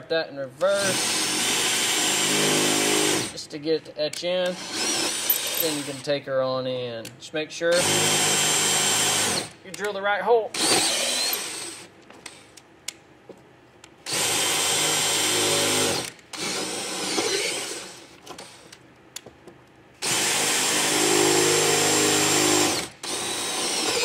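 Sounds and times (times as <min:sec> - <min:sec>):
cordless drill boring: 0:00.8 - 0:03.4, 0:04.6 - 0:06.0, 0:07.7 - 0:09.5, 0:10.6 - 0:11.9, 0:14.1 - 0:18.6, 0:20.0 - 0:24.0.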